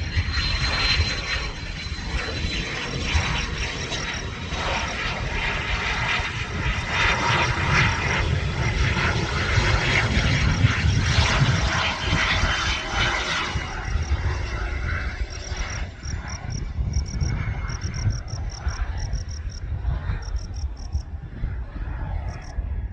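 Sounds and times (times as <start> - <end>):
jet engine rushing: 0.0 - 22.9
insects chirping: 3.0 - 9.1, 13.4 - 21.1, 22.1 - 22.6.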